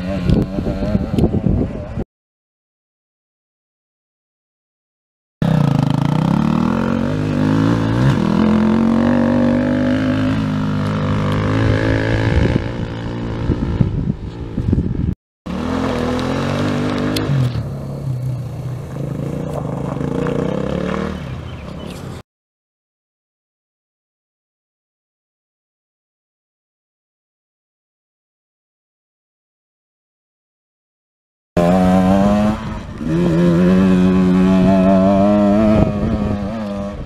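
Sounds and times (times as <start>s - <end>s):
dirt bike engine revving: 5.4s - 14.1s, 15.5s - 22.0s, 31.6s - 37.0s.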